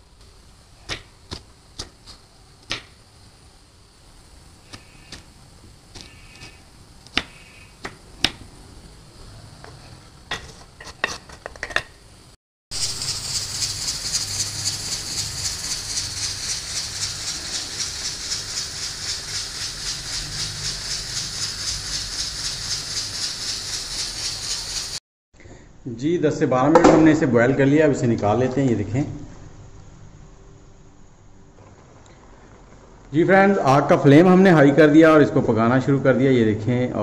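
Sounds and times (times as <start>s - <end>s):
pressure cooker whistle hissing: 12.8s - 25.0s.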